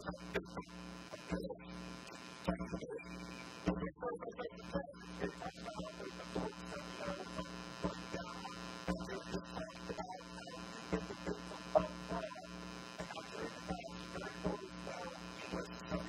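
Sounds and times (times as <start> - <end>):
electrical mains hum: 0.0 - 3.8, 4.5 - 16.0.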